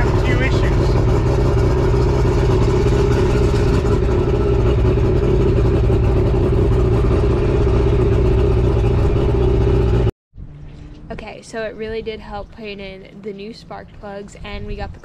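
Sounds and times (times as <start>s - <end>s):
outboard motor running: 0.0s - 10.1s.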